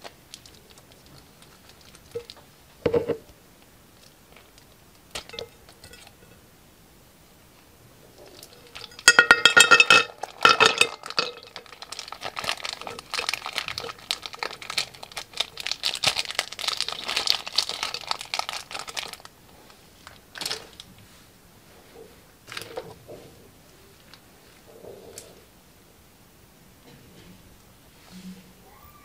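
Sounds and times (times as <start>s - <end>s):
plastic bag crinkling: 0.0s - 3.2s, 8.3s - 20.9s
plastic pieces clattering into glass dish: 8.4s - 19.3s.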